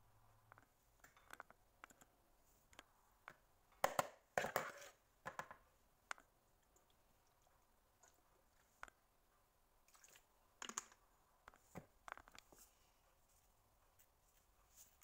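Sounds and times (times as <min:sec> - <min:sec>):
metal spoon scraping bowl: 0:04.4 - 0:05.0.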